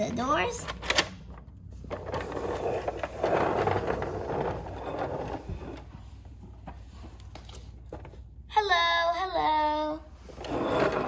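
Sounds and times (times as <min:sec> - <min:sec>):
plastic wheels rolling on wood: 0:01.8 - 0:08.2, 0:10.3 - 0:11.0.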